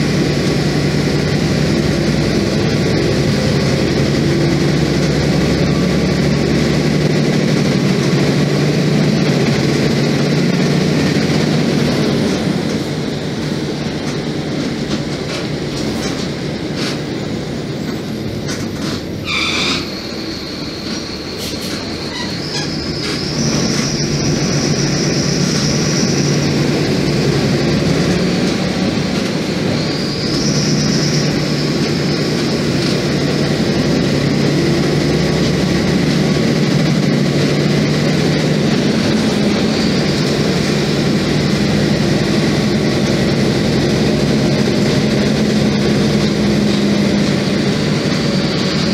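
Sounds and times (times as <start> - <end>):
bus diesel engine running: 0.0 - 48.9
short squeal: 18.9 - 26.5, 29.6 - 32.3.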